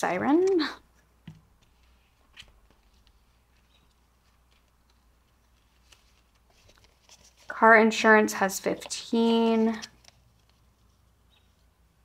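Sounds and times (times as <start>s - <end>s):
papers and binder rustling: 1.6s - 11.0s.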